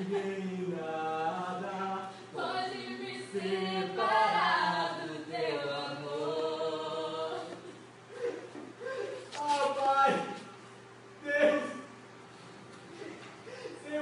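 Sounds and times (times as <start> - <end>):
voices singing slow song: 0.0 - 9.2.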